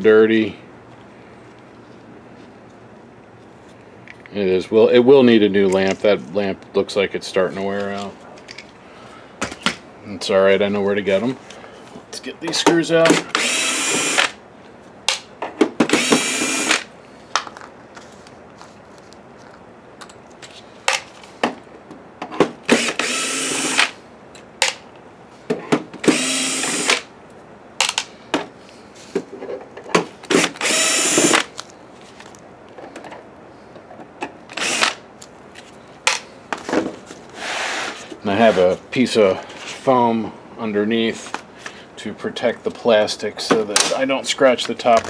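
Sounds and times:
cordless drill driving screws: 13.2 - 14.4, 15.9 - 16.9, 22.7 - 23.9, 26.0 - 27.1, 30.3 - 31.5, 34.5 - 35.0.

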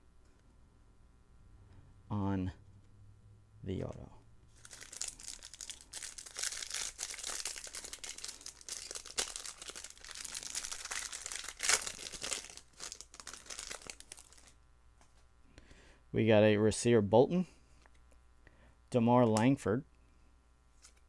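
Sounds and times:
plastic wrapper tearing and crinkling: 4.5 - 14.6.

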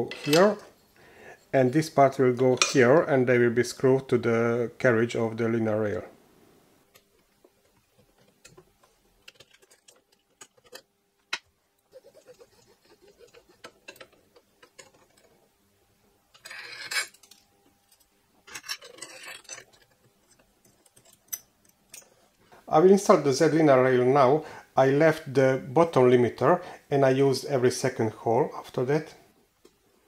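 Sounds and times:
small metal parts clinking: 7.0 - 11.4, 12.5 - 15.4, 16.3 - 22.2.

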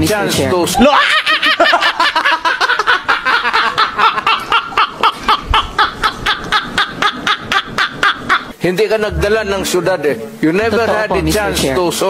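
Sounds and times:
men laughing hard: 0.6 - 8.6.

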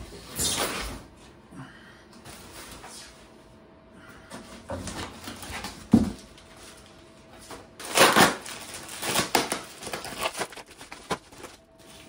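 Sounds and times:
paper and plastic wrap crinkling: 5.1 - 12.0.

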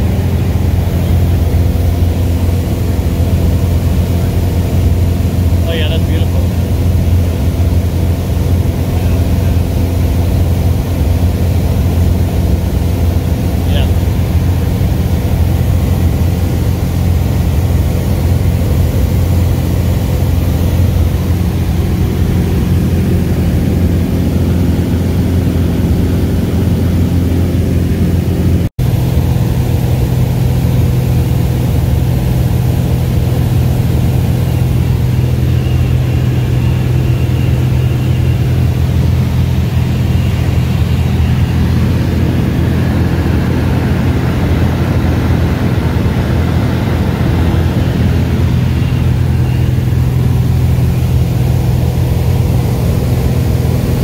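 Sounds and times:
airplane engine droning in cabin: 0.0 - 54.0.

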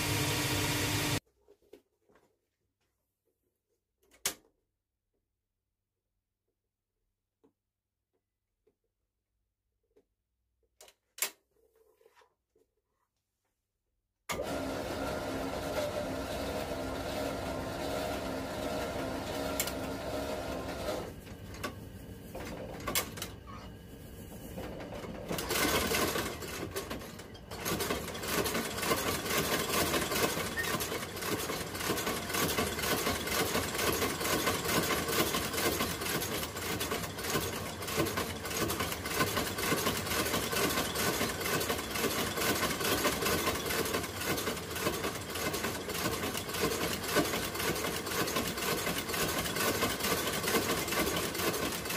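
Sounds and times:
sole-stitching machine running: 0.0 - 1.2, 14.3 - 21.2, 24.6 - 51.9.

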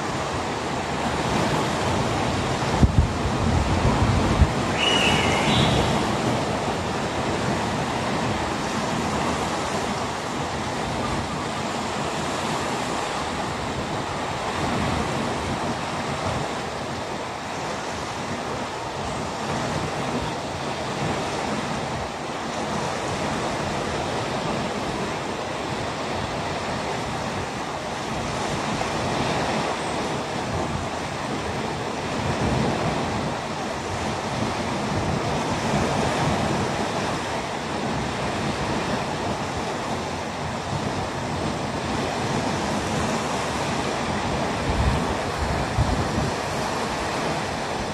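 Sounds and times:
gentle sea waves washing: 0.0 - 47.9.

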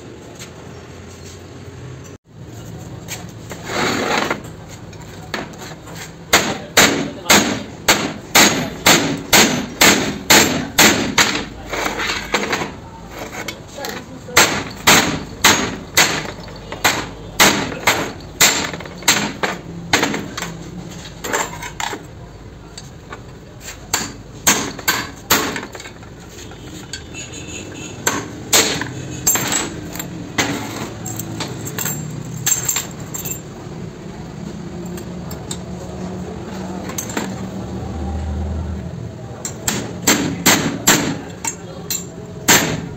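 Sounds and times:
hammer striking metal punch: 6.3 - 11.6, 14.3 - 20.6, 23.9 - 25.8, 28.0 - 30.6, 39.4 - 42.9.

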